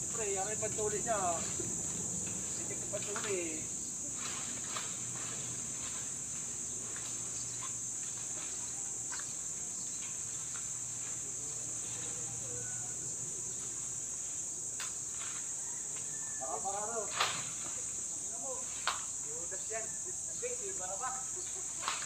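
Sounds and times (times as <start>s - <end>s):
high-pitched insect drone: 0.0s - 22.0s
branches cracking and rustling: 0.7s - 12.2s, 16.9s - 18.0s, 21.7s - 22.0s.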